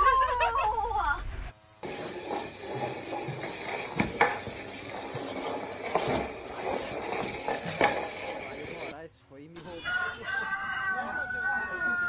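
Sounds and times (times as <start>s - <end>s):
plant pot scraping on tile floor: 1.8s - 9.0s.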